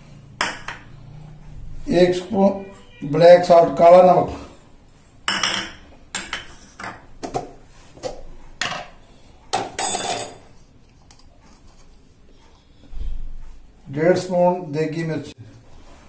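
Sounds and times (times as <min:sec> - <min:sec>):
spoon clinking on plastic bowls: 0:05.2 - 0:07.5.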